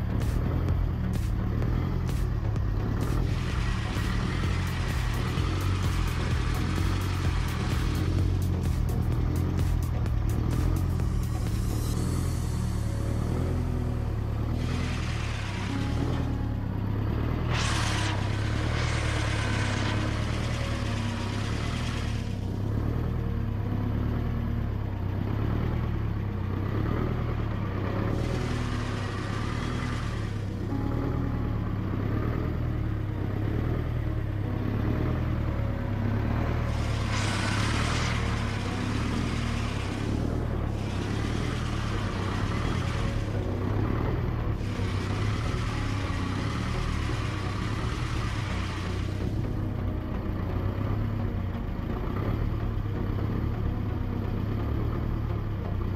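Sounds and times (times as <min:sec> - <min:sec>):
diesel tractor engine running: 0:00.0 - 0:55.9.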